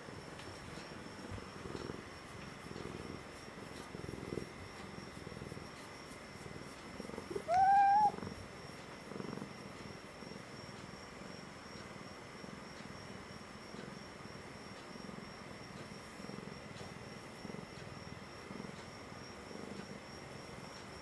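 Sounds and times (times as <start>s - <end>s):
cat purring: 0.0s - 21.0s
cat meowing: 7.3s - 8.2s.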